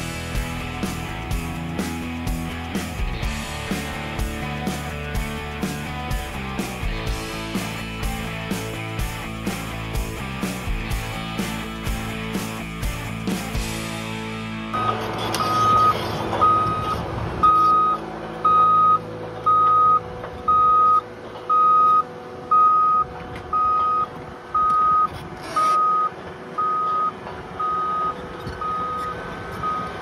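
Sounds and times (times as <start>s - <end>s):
warning alarm beeping: 14.7s - 30.0s.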